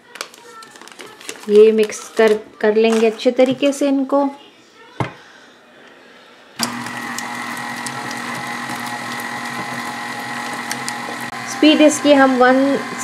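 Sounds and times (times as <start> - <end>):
stand mixer motor whining: 6.6 - 13.0.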